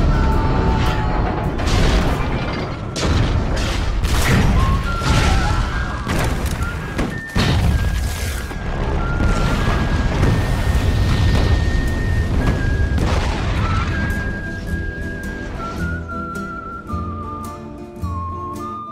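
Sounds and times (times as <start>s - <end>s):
music: 0.0s - 18.9s
crashes and booms: 1.0s - 14.6s.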